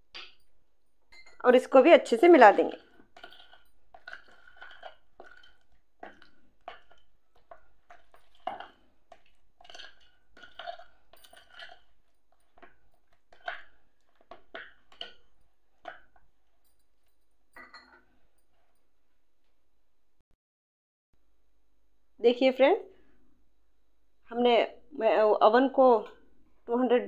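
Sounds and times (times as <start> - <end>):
metal bangles clinking: 0.3 - 1.6.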